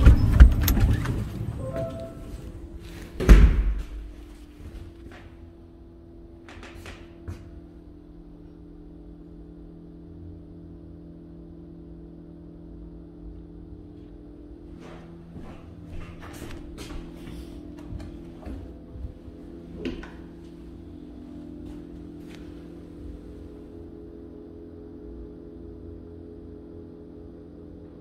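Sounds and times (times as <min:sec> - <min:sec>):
low steady hum: 0:00.0 - 0:28.0
door thumping shut: 0:03.2 - 0:04.1.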